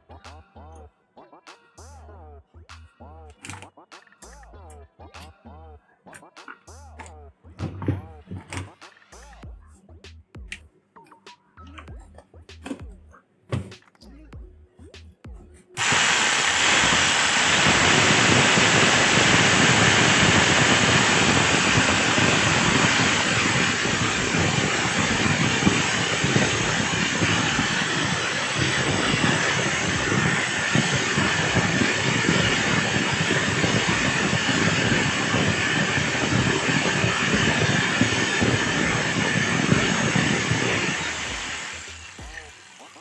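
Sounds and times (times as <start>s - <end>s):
electric demolition breaker hammering: 15.8s - 42.5s.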